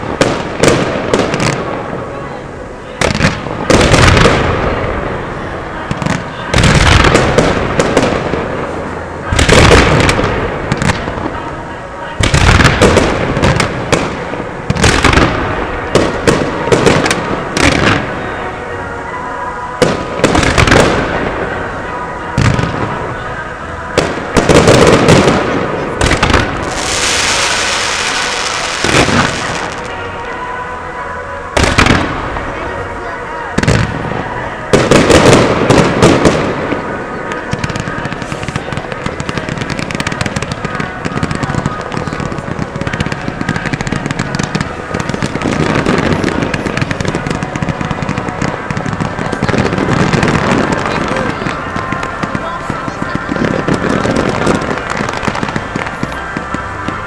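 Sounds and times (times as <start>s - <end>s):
fireworks bangs: 0.0s - 57.0s
high hissing crackle: 26.0s - 30.2s.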